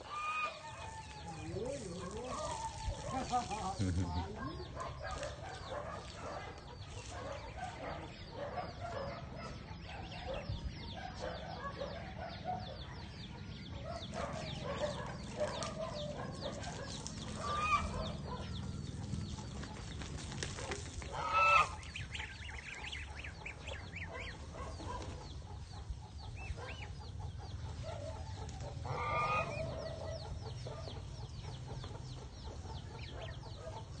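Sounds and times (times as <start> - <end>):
geese clucking and peeping: 0.0 - 34.0
loud goose honks: 21.1 - 21.9, 28.9 - 29.6.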